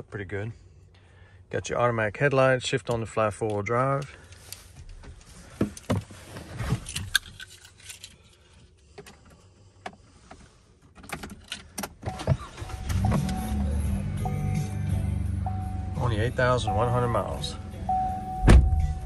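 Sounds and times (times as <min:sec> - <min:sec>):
light clicks and key rattles: 0:06.8 - 0:09.4
car engine starting and idling: 0:11.0 - 0:19.0
dash warning chimes: 0:14.2 - 0:19.0.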